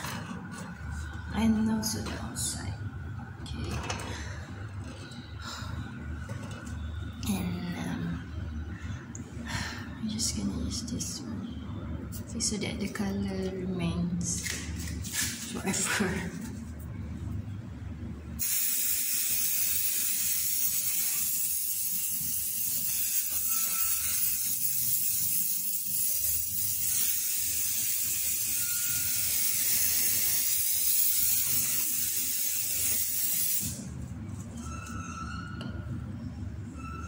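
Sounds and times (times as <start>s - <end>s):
aerosol spray can hissing: 18.4s - 33.8s.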